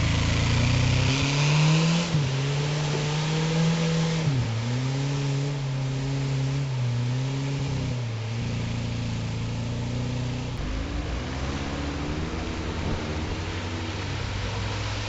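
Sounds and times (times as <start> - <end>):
water splashing: 0.0 - 15.0
truck engine under load: 9.1 - 15.0.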